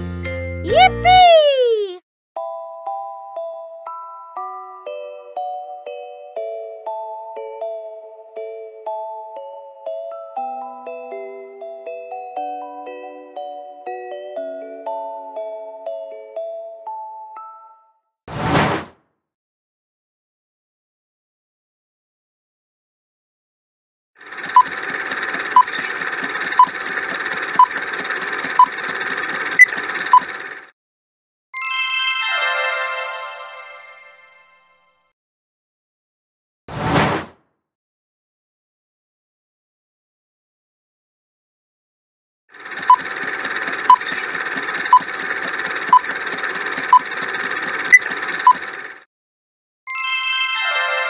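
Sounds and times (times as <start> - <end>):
fast ticking timer: 24.2 - 30.7, 42.6 - 49.0
sharp click: 42.6 - 48.7
sharp beeps: 47.7 - 48.6.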